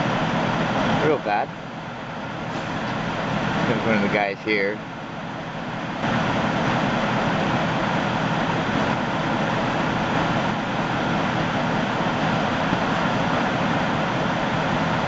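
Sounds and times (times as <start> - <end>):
vehicle engine noise: 0.0 - 15.0.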